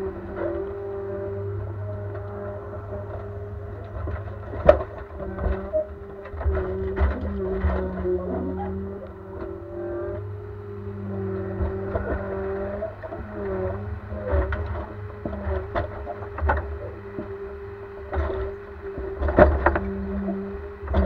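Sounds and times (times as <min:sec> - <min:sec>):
crane knocks and clunks: 0:00.0 - 0:21.0
diesel engine and hydraulics drone: 0:00.0 - 0:21.0.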